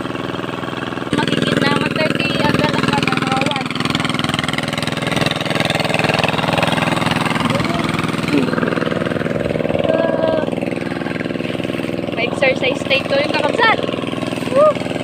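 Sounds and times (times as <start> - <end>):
small engine running: 0.0 - 15.0
faint voices: 9.6 - 13.8.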